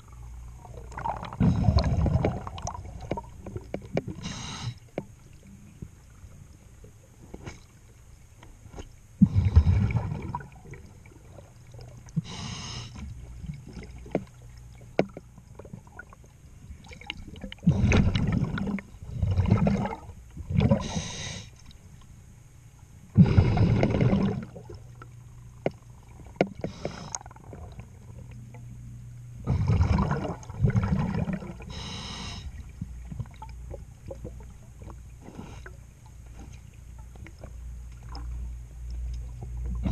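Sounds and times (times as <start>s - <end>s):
bubbling exhaled air: 0.0s - 4.8s, 9.2s - 13.0s, 16.8s - 21.5s, 23.2s - 24.8s, 29.4s - 32.7s
faint low hum: 0.0s - 39.9s
diver breathing through regulator: 4.2s - 4.9s, 12.2s - 13.1s, 20.7s - 21.6s, 23.2s - 24.3s, 26.6s - 27.4s, 31.7s - 32.6s.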